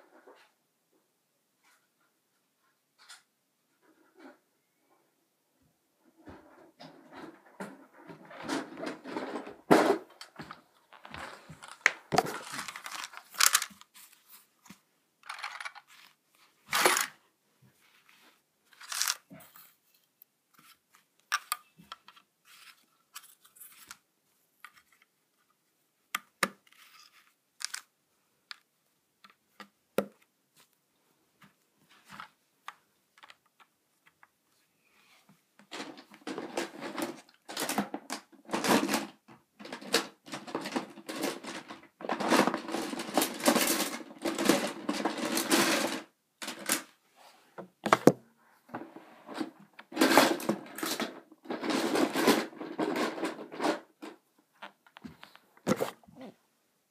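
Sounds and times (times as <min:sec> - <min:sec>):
plastic toy track clicking: 0:11.7 - 0:13.8, 0:15.2 - 0:15.9, 0:16.7 - 0:17.2, 0:18.7 - 0:19.2, 0:27.6 - 0:27.9, 0:35.7 - 0:46.9, 0:49.9 - 0:54.2.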